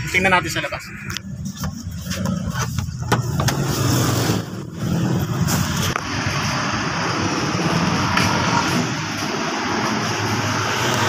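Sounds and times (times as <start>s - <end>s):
car humming: 0.0s - 11.0s
car door knocks and clatter: 2.7s - 3.6s.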